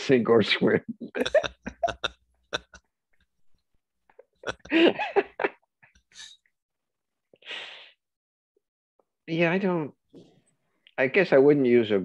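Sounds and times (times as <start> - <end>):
man laughing: 1.1 - 2.8, 4.2 - 5.6.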